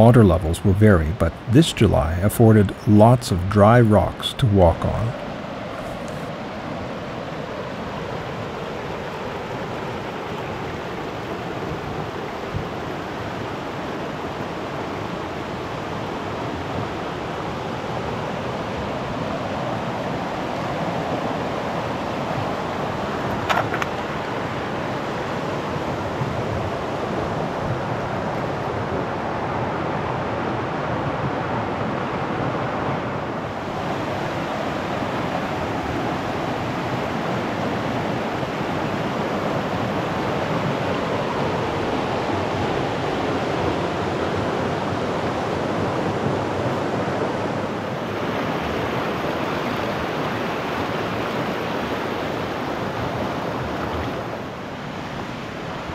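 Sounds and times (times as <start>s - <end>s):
creek rushing over rocks: 0.0s - 30.8s.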